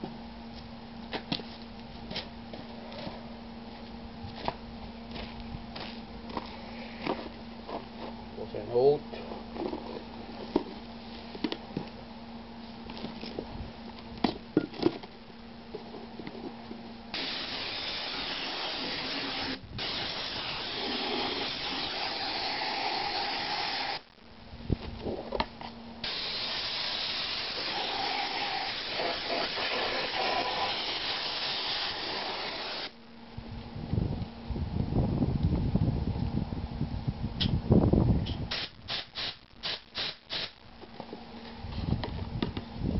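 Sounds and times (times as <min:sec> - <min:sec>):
spray gun hissing: 0:17.2 - 0:24.0, 0:26.0 - 0:32.9.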